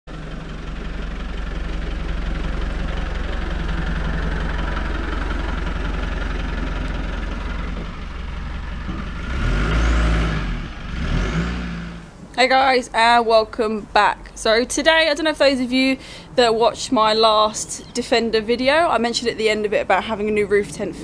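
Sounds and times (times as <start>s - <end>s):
diesel engine running: 0.1s - 21.0s.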